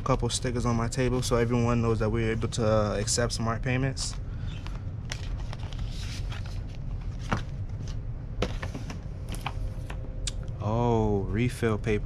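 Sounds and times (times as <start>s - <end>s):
steady low hum: 0.0s - 12.0s
paper and cardboard rustling: 4.0s - 10.0s.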